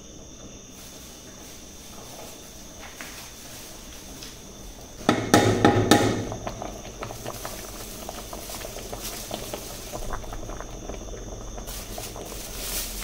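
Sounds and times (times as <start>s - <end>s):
boiling water bubbling and popping: 3.4s - 13.0s
plastic bag crinkling: 6.9s - 13.0s.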